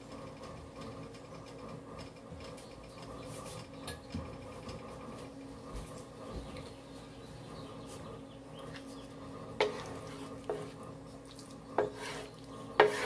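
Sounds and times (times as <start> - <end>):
wooden spoon stirring in skillet: 8.7 - 13.0.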